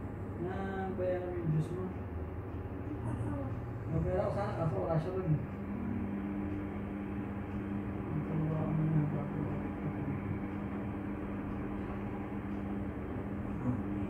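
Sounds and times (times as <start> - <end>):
machine hum: 0.0 - 14.0
faint murmur: 7.6 - 14.0.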